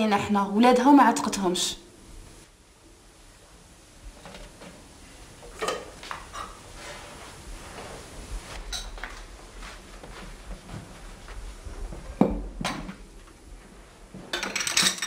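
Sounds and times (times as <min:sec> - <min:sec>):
cups and dishes clinking: 0:05.5 - 0:06.6, 0:14.3 - 0:15.0.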